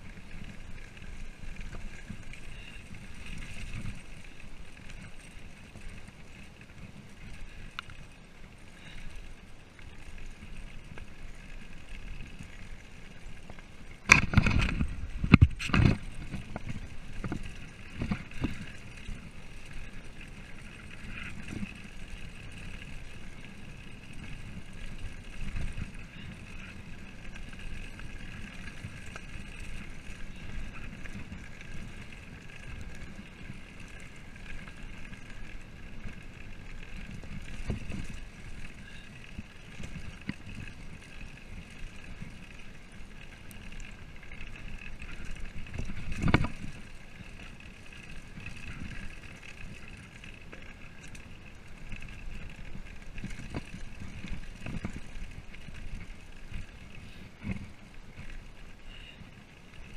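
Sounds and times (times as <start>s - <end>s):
bike jolts and rattles: 0.0s - 59.9s
bike tyres rolling on gravel: 0.0s - 59.9s.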